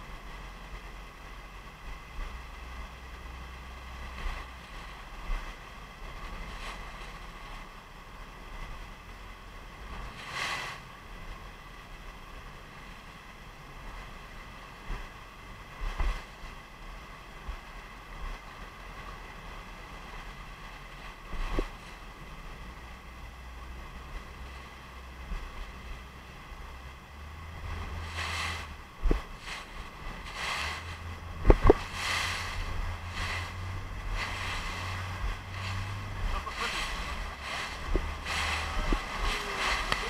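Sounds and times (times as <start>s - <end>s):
waterfall rushing: 9.5s - 40.0s
wind buffeting microphone: 17.3s - 40.0s.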